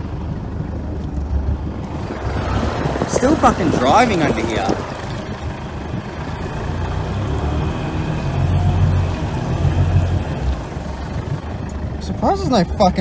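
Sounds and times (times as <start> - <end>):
diesel engine under load: 0.0 - 13.0.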